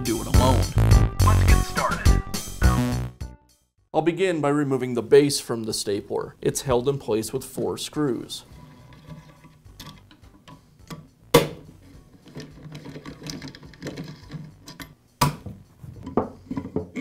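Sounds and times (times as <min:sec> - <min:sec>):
metal tool clicking in screws: 0:09.1 - 0:11.1, 0:12.1 - 0:15.0.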